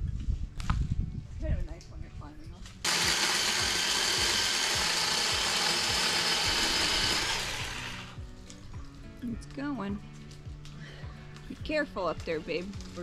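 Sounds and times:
power saw cutting branch: 2.8 - 8.2.

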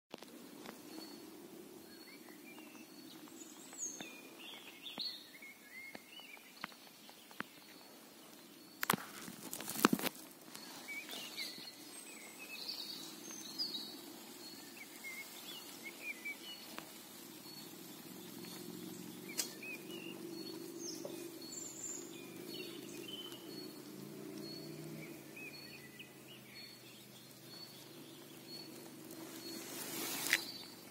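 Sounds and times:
small birds chirping: 0.1 - 30.9.

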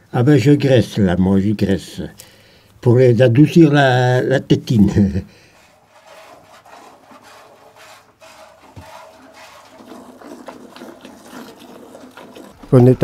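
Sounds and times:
milk squirting: 5.4 - 12.8.

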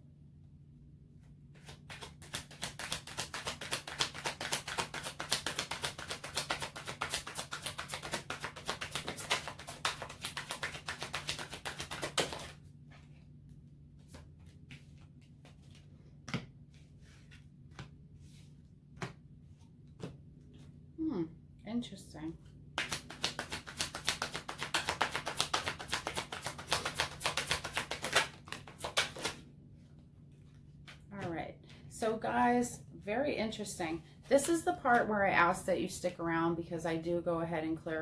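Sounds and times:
cards being shuffled: 1.5 - 13.3, 13.9 - 20.7, 22.8 - 31.1.

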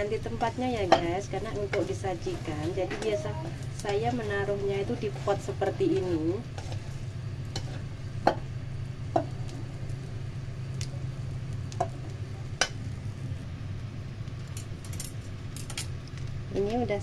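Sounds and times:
steady low hum: 0.0 - 17.0
food scraped from frying pan: 6.5 - 7.9.

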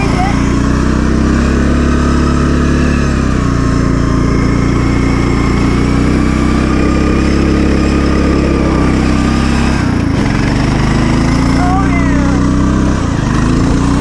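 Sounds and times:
riding lawn mower engine: 0.0 - 14.0.

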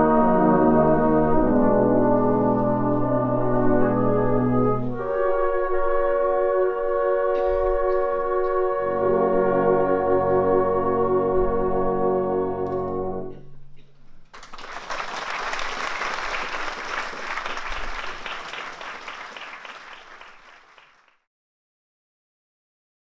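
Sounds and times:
audience applause: 14.3 - 21.2.

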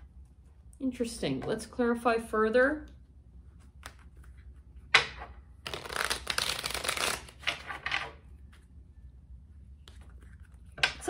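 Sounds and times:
cards shuffling: 3.6 - 8.6.

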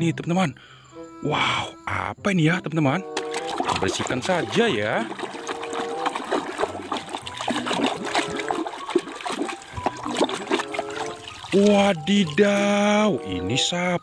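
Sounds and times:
water splashing in tub: 3.2 - 13.3.

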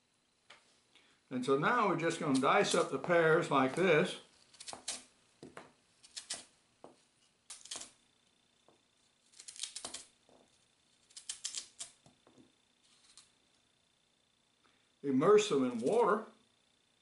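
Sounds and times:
knife cutting pear: 3.7 - 6.5, 7.5 - 8.0, 9.3 - 10.2.

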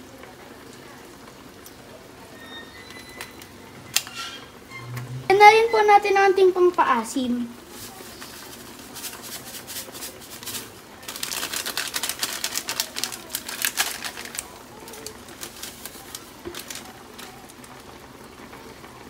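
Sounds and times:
plastic sachet crinkling: 7.6 - 17.8
sachet tapping: 8.3 - 17.3.

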